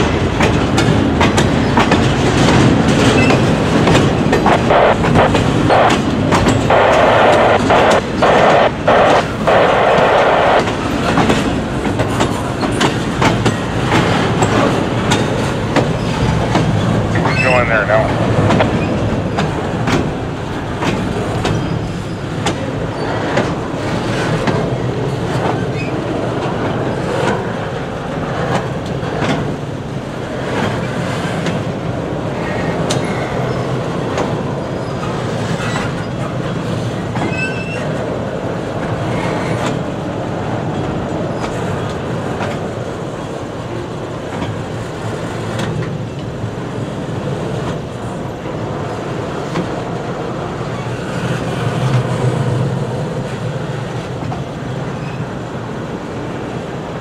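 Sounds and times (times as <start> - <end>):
train wheels clattering on rail joints: 0.0 - 56.7
wheel squeal: 37.2 - 38.0.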